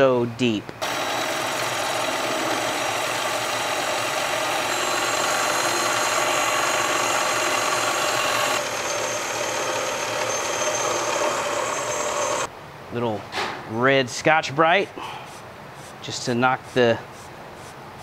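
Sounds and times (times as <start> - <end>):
metal lathe whirring and whining: 0.8 - 12.5.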